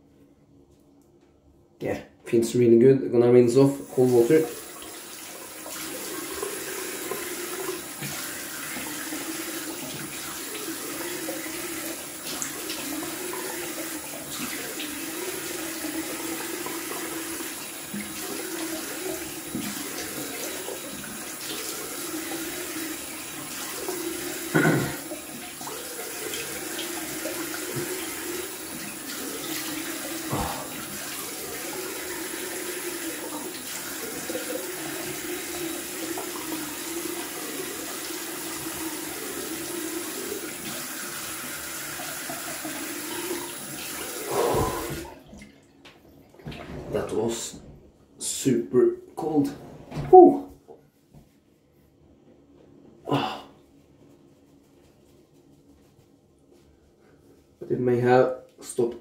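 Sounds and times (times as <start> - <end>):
tap running: 4.1 - 47.0
water splashing on face: 44.1 - 45.6.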